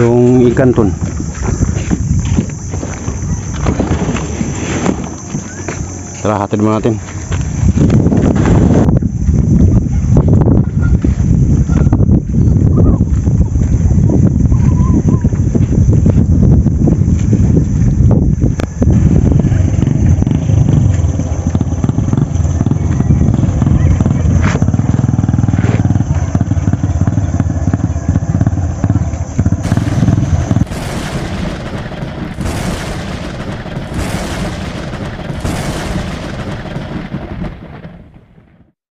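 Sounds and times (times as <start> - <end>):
wind on microphone: 0.0 - 38.1
low engine-like rumble: 5.2 - 38.6
fireworks booming: 29.6 - 38.7.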